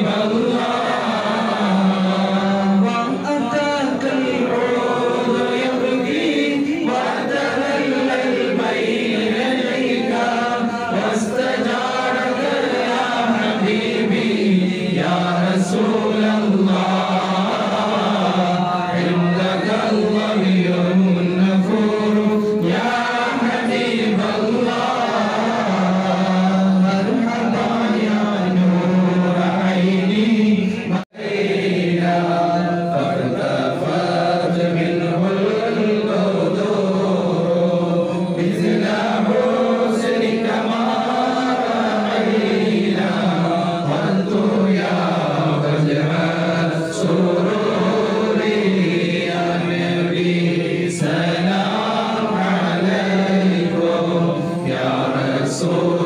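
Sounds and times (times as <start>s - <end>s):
men chanting a devotional song: 0.0s - 56.0s.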